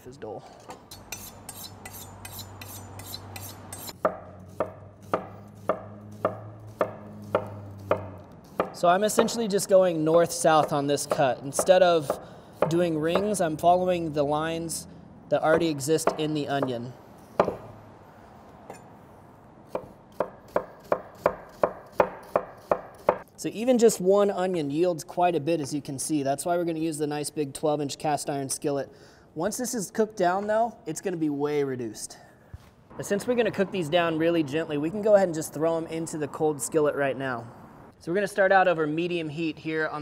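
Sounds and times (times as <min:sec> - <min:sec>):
knife scraping on honing rod: 0:00.5 - 0:08.7.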